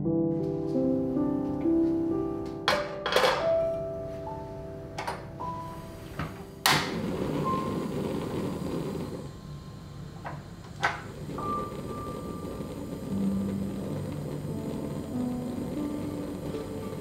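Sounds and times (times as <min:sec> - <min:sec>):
gas flame rushing: 0:05.5 - 0:17.0.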